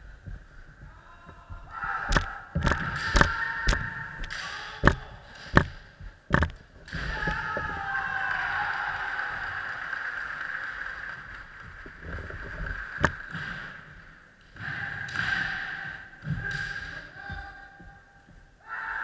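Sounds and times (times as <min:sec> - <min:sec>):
fighters' drawn-out shouts: 0:01.0 - 0:05.4, 0:06.9 - 0:10.0, 0:14.6 - 0:18.0, 0:18.6 - 0:19.0.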